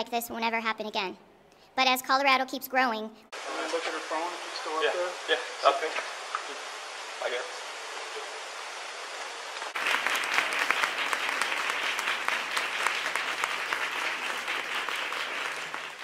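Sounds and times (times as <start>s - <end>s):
faint hiss: 3.1s - 16.0s
audience applauding: 9.6s - 16.0s.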